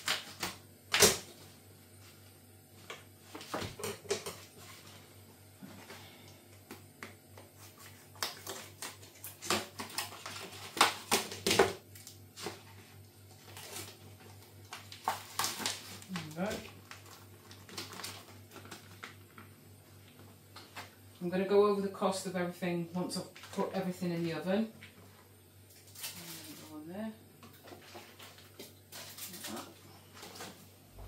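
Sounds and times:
plastic crinkling: 7.6s - 20.9s, 25.7s - 26.8s, 27.5s - 30.6s.

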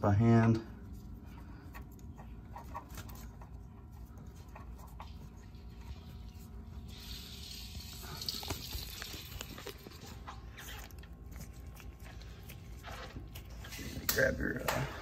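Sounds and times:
aluminium foil crinkling: 7.7s - 12.3s.

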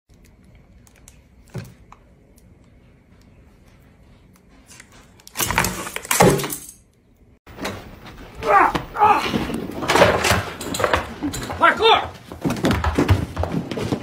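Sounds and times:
plastic tub clattering on floor: 9.6s - 14.0s.

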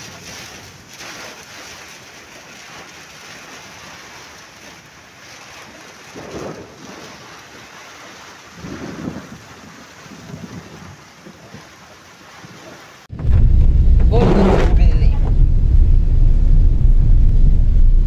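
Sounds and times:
low thunder rumble: 13.1s - 18.0s.

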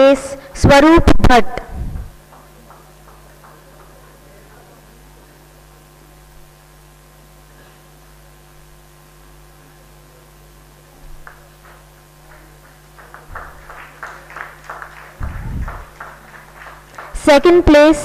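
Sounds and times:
electrical hum: 0.0s - 18.0s
people clapping: 1.9s - 5.2s, 11.0s - 17.8s.

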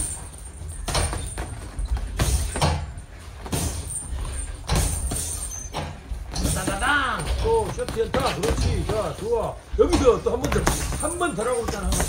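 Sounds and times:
low gym rumble: 0.0s - 12.0s
boxing gloves punching thuds: 0.8s - 12.0s.

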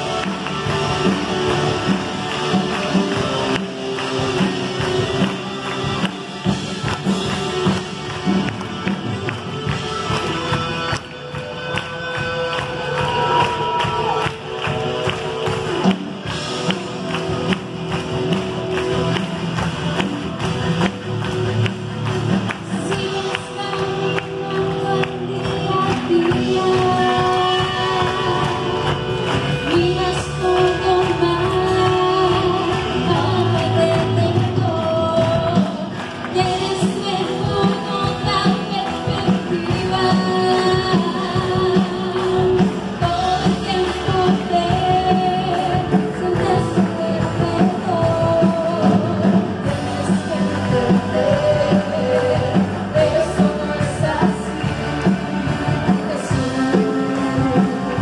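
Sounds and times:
worship band playing: 0.0s - 58.0s
woman singing into microphone: 22.7s - 58.0s.

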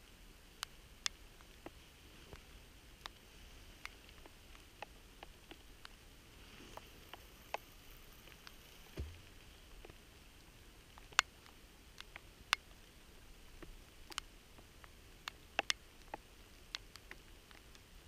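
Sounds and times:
light rain hiss: 0.0s - 18.0s
raindrops tapping on camera: 8.3s - 10.0s.

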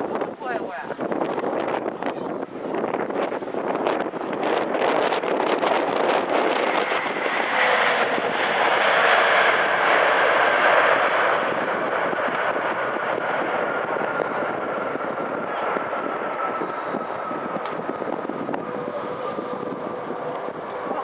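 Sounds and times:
jet engine roar: 0.0s - 21.0s
high whine falling in pitch: 4.9s - 21.0s.

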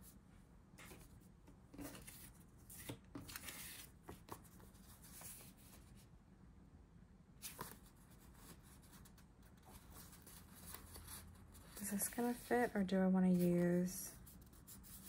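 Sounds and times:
paper sheets rustling: 1.8s - 5.7s, 7.4s - 15.0s.

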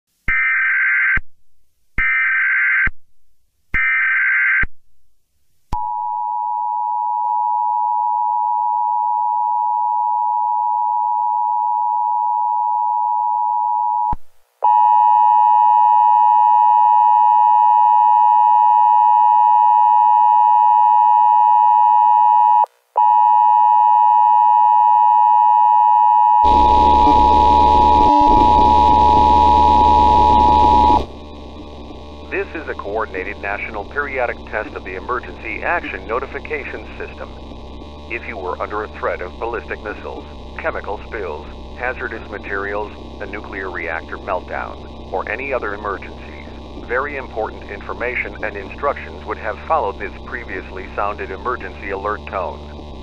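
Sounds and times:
two-tone alert signal: 26.3s - 31.0s
screeching digital data bursts: 26.4s - 52.6s
static hiss: 26.5s - 53.0s.

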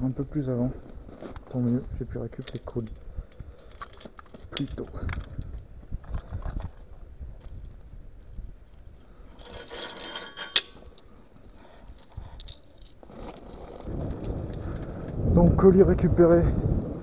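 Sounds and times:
jangling rattle and rustle: 2.2s - 13.9s.

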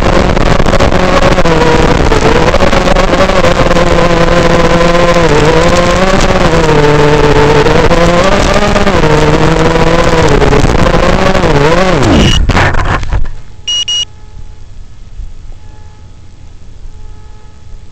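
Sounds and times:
quadcopter motors whining: 0.0s - 12.4s
short high beeps: 12.2s - 12.4s, 13.6s - 14.1s.

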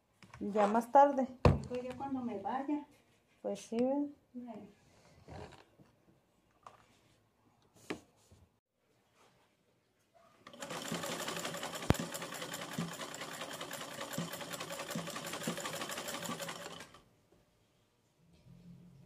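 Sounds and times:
sewing machine stitching: 10.4s - 17.0s.

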